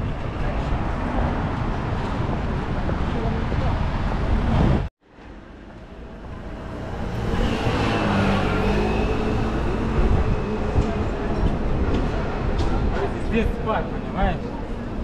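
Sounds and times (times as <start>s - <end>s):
vehicle running: 0.0s - 15.0s
high-pitched squeal: 5.9s - 12.9s.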